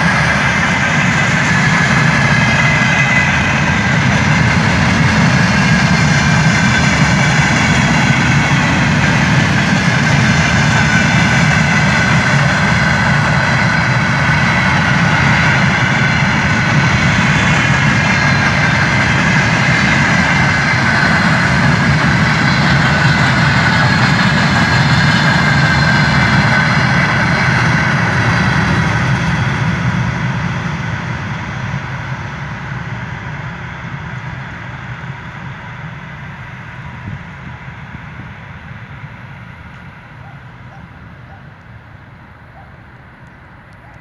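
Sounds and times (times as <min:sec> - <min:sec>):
train wheels clattering on rails: 0:00.0 - 0:35.0.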